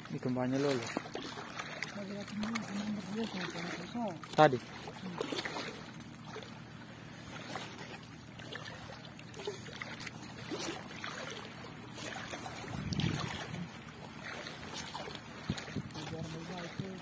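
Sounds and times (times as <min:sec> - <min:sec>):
small splashes: 0:00.0 - 0:17.0
low rumble: 0:11.5 - 0:16.4.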